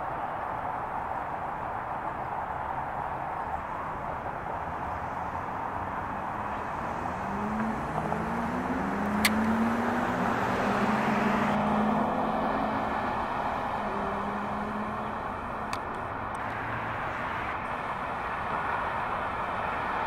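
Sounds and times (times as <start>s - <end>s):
urban traffic noise: 0.0s - 20.0s
vehicle engine hum approaching: 0.0s - 20.0s
sharp click: 9.1s - 9.5s.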